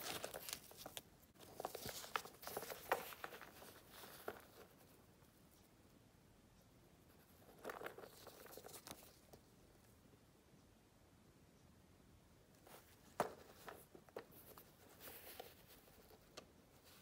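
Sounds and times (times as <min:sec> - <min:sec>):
leather pouch crinkling: 0:00.0 - 0:04.4.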